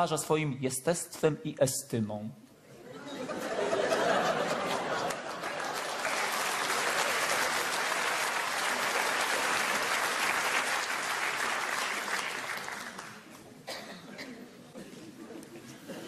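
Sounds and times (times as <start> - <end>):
audience applauding: 4.3 - 13.3.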